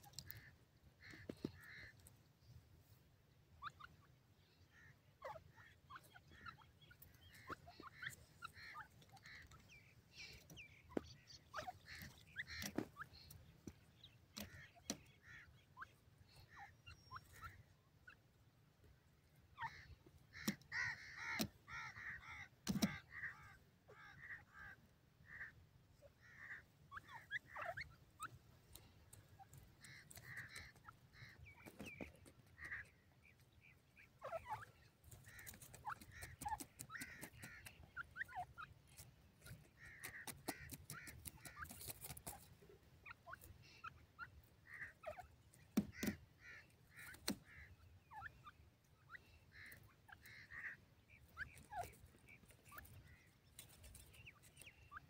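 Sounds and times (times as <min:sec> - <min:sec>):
partridges calling: 0:00.0 - 0:55.0.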